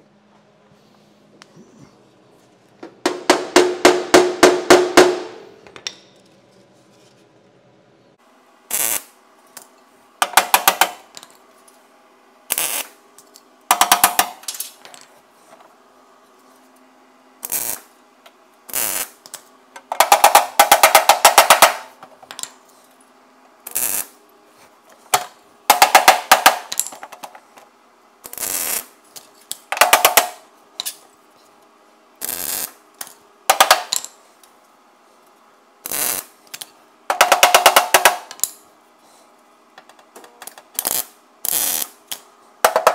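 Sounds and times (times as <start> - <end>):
faint steady hum: 0.0 - 42.9
welder crackling: 8.7 - 9.2, 12.5 - 13.0, 17.4 - 17.9, 18.7 - 19.4, 23.7 - 24.2, 28.3 - 29.0, 32.2 - 32.8, 35.8 - 36.3, 40.8 - 42.3.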